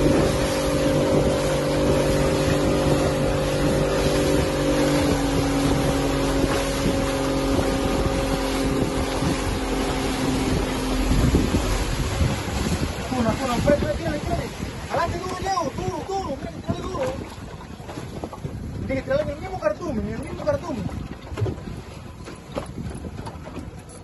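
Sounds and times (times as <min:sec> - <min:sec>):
outboard motor running: 0:00.0 - 0:24.0
water spraying along hull: 0:00.0 - 0:24.0
wind on microphone: 0:00.0 - 0:24.0.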